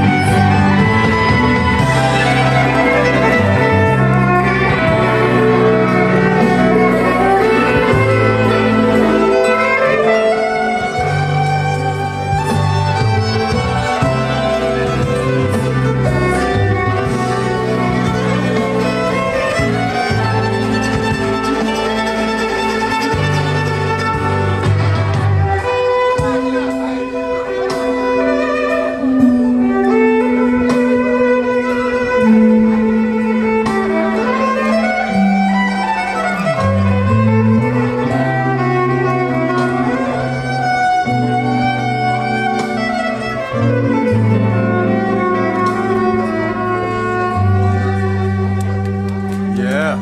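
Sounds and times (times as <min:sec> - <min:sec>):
long low bass notes: 0:00.0 - 0:27.9
violin slow melody: 0:00.0 - 0:50.0.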